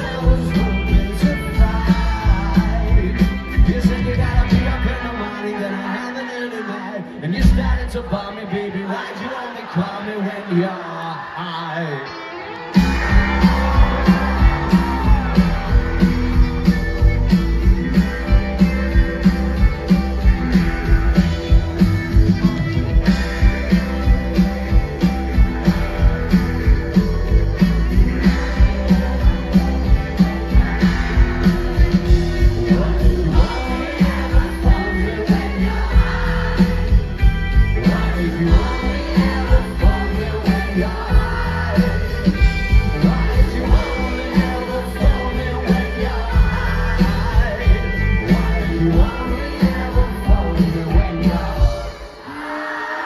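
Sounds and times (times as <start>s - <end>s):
live rock band: 0.0s - 53.0s
drum beat: 12.8s - 52.0s.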